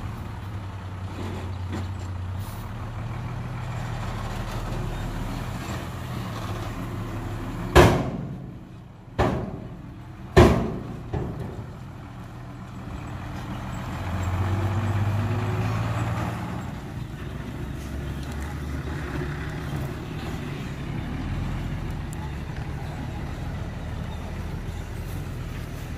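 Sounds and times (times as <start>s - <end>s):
diesel truck engine running: 0.0s - 25.9s
loud sharp bangs: 7.7s - 9.8s, 10.4s - 11.7s.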